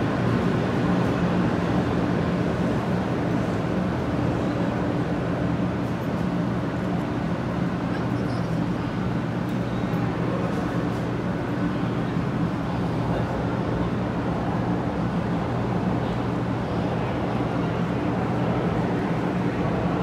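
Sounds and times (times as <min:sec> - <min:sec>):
faint crowd chatter: 0:00.0 - 0:20.0
train equipment low hum: 0:00.0 - 0:20.0.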